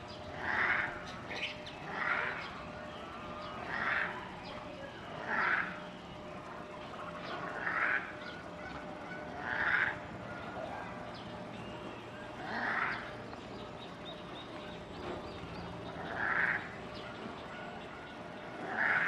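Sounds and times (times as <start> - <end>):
macaque calling: 7.5 - 10.8, 16.0 - 19.0.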